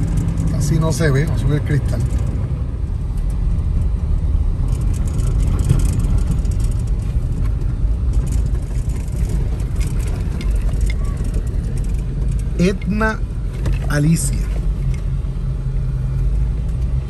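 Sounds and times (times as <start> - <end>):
vehicle engine and road rumble: 0.0 - 17.0
clicks and rattles: 4.7 - 15.1.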